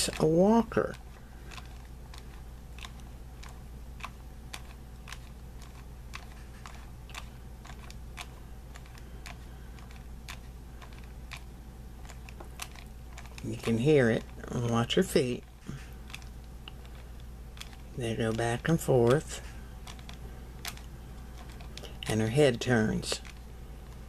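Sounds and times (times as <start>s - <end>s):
faint doll mechanism clicks: 0.0s - 15.5s.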